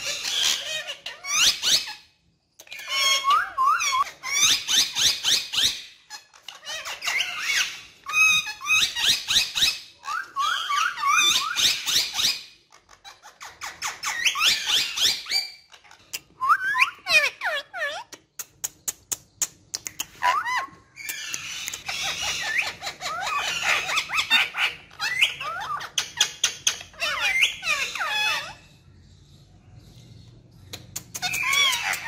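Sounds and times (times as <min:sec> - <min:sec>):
parakeets chirping: 0:00.0 - 0:32.0
sharp clicks: 0:18.2 - 0:20.2, 0:30.7 - 0:31.6.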